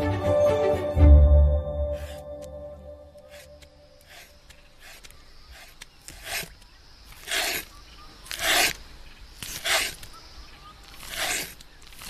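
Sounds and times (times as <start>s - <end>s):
rasping scraping strokes: 1.9s - 2.4s, 3.2s - 8.8s, 9.4s - 10.1s, 10.8s - 12.0s.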